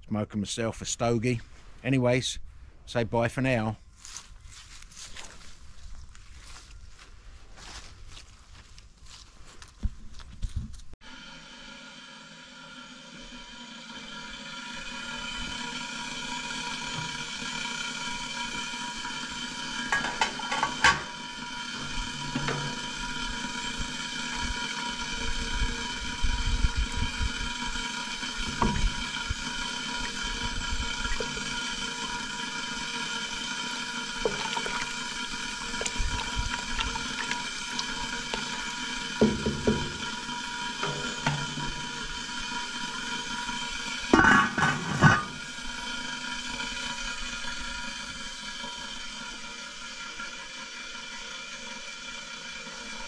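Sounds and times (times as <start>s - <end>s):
soup simmering in pot: 11.0s - 53.0s
metal lid clinking: 19.9s - 21.2s, 44.2s - 45.4s
wooden spoon stirring soup: 33.8s - 40.2s
knocks against pot: 39.2s - 40.1s.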